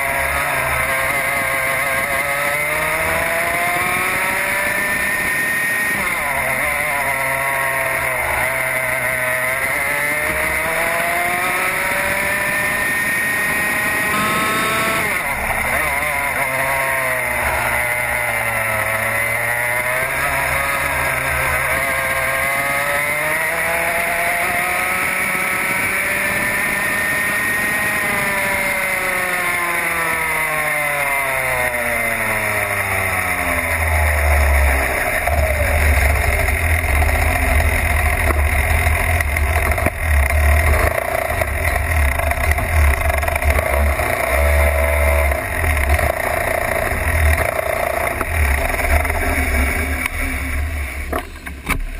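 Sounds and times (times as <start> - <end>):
kart engine revving: 0.0 - 51.9.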